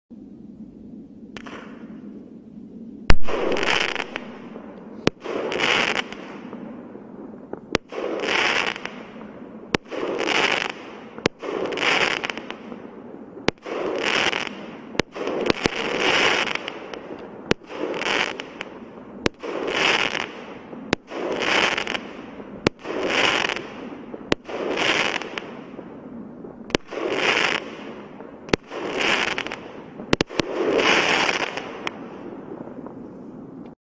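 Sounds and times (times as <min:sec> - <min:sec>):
firework launch pops: 0:01.3 - 0:01.9, 0:03.1 - 0:04.4.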